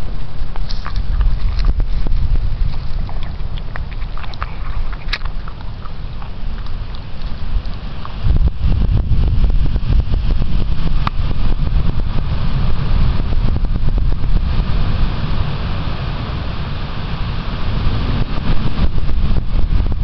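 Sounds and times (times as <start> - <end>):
crackling on microphone: 0.0 - 15.3
low rumble: 0.0 - 20.0.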